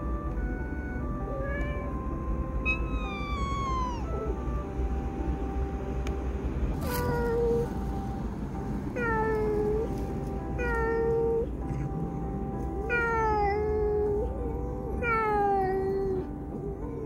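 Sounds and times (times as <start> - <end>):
cat meowing: 1.2 - 4.4, 6.8 - 7.8, 9.0 - 9.9, 10.5 - 12.0, 12.8 - 17.0.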